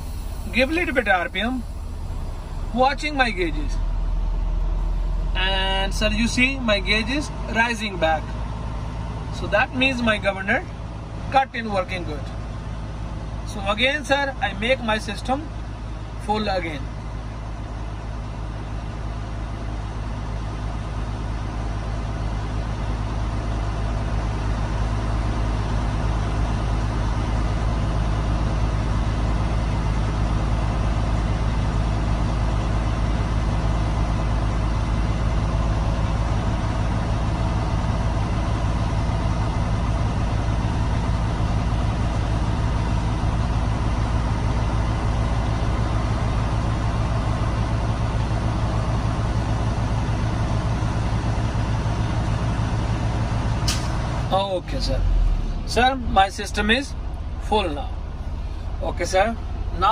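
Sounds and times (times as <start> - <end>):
air compressor building pressure: 0.0 - 7.4
diesel truck engine running: 0.0 - 59.9.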